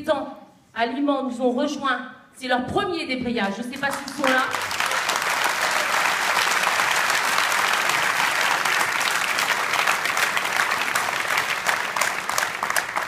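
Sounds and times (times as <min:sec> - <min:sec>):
crowd applauding: 0:03.8 - 0:13.0.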